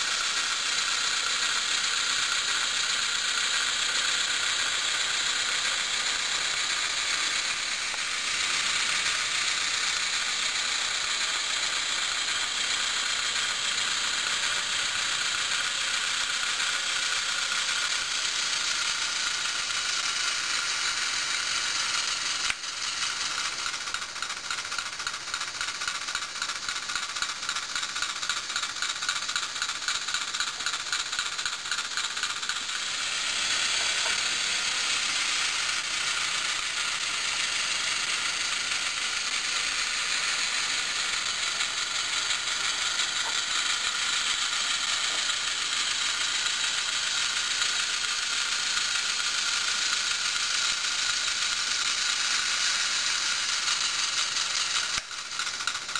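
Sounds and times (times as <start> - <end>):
model train motor whirring: 0.0 - 55.9.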